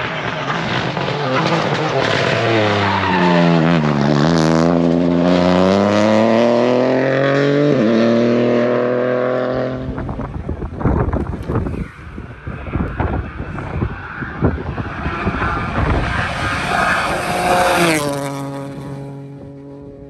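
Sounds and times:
rally car engine accelerating: 0.0 - 20.0
wind buffeting microphone: 9.6 - 20.0.

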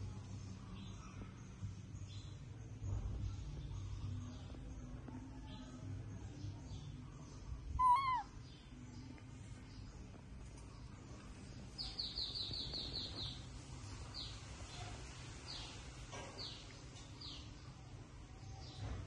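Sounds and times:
small bird chirping: 6.2 - 17.8.

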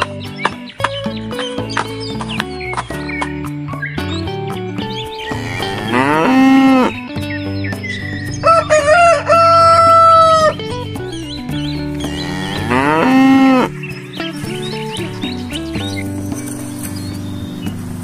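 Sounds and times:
background music: 0.0 - 18.0
cow mooing: 5.2 - 7.0, 12.0 - 13.7
rooster crowing: 8.4 - 10.5.

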